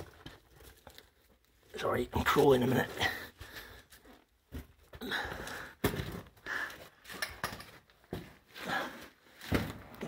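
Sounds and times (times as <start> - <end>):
person breathing hard: 3.0 - 4.3, 4.9 - 7.1.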